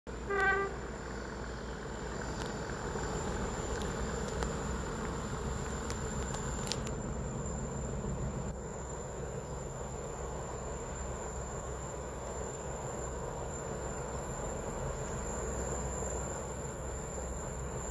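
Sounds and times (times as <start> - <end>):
distant diesel locomotive rumble: 0.1 - 17.9.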